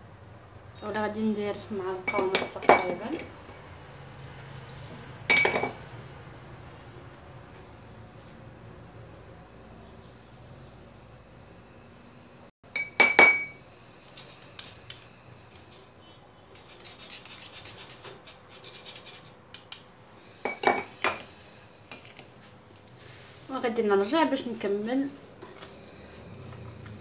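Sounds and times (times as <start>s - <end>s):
spoon scraping powder through sieve: 13.9s - 19.8s.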